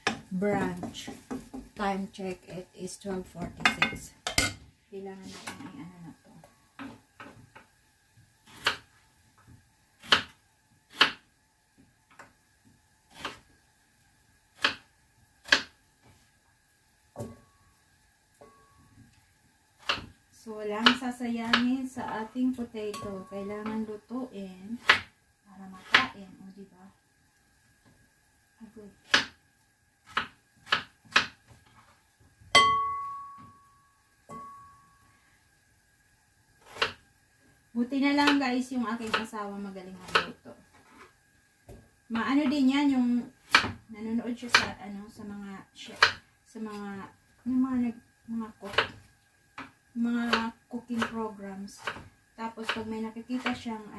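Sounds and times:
faint steady hum: 0.0 - 53.9
utensils knocking on cookware: 3.4 - 4.6
metal pan struck ringing: 32.6 - 33.7, 34.3 - 34.9.

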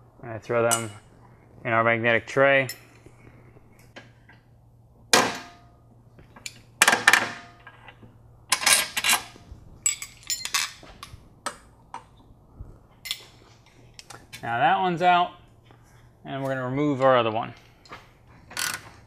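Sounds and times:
metal tools clinking on metal: 8.5 - 10.8.

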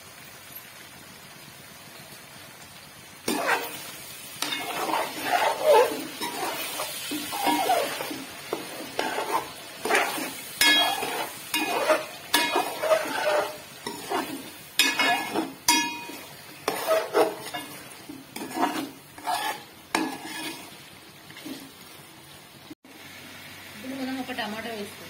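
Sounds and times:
ladle scraping metal pot: 3.3 - 21.7
ladle clinking pot: 9.0 - 14.2, 14.8 - 17.8.

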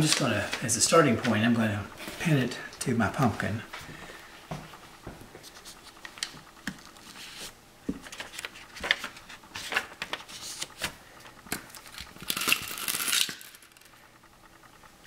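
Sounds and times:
paper rustling and crinkling: 5.4 - 12.6.

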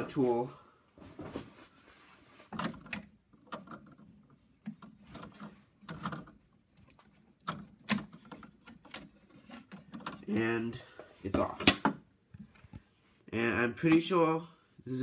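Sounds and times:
plastic print clicking and scraping: 2.6 - 10.3.

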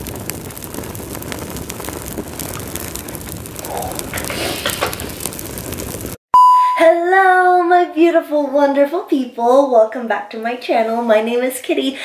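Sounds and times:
flames burning with crackles: 0.0 - 6.2.

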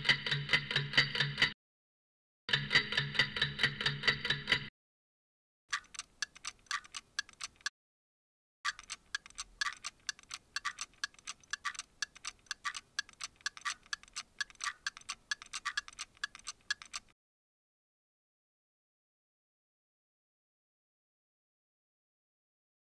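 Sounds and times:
clock ticking fast: 0.0 - 1.6, 2.5 - 4.7, 5.7 - 7.7, 8.7 - 17.2.

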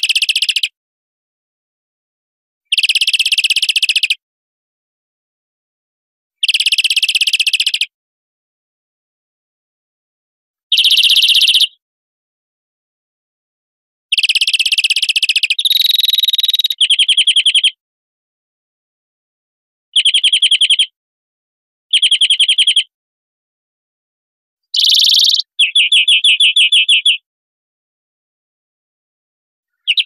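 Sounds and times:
finch song fast trills: 10.7 - 11.8, 14.1 - 17.7, 24.8 - 27.2, 29.8 - 30.0.

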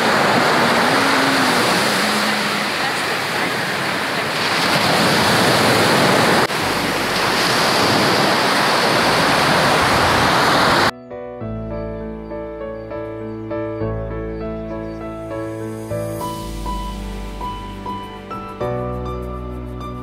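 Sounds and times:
waves breaking on a sandy beach: 0.0 - 10.9.

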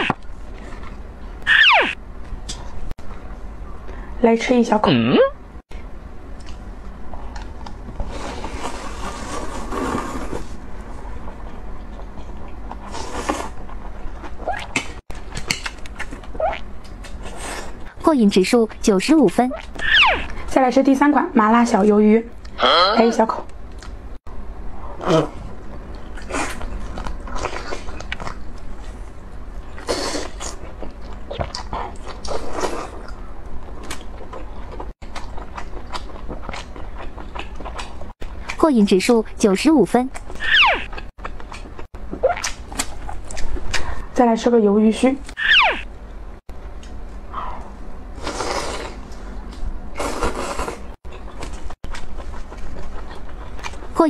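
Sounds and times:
steady low hum: 0.0 - 54.0
mouth clicks and squeaks: 1.4 - 2.0, 19.5 - 20.4, 40.2 - 41.1, 45.3 - 45.9
biting and chewing squid: 29.7 - 38.6, 40.1 - 43.9, 48.4 - 54.0.

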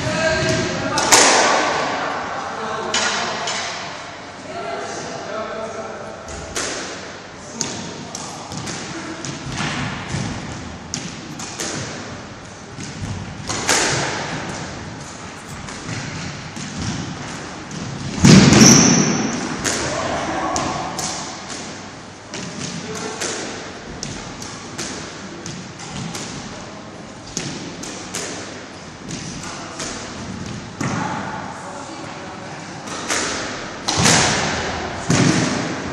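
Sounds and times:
squash ball struck by rackets: 6.3 - 26.5, 27.2 - 31.4, 32.9 - 35.9
ball smacking against walls: 12.7 - 14.8.

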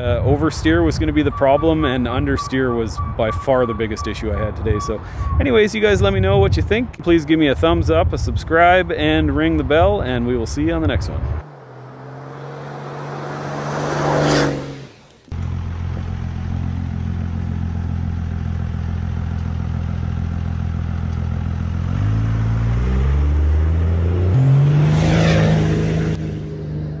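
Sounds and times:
engine accelerating: 0.0 - 5.4, 11.3 - 27.0
whoosh with falling pitch: 11.3 - 15.2, 22.5 - 27.0.

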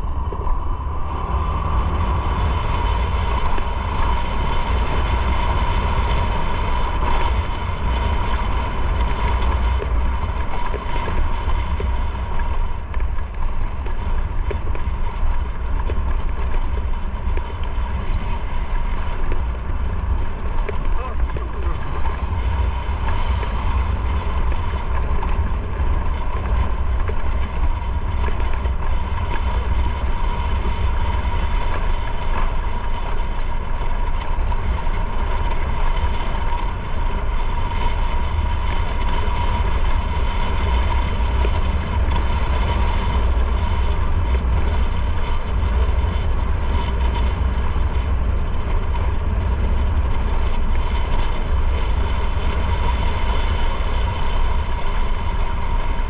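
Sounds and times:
wind rumble on microphone: 0.0 - 56.0.

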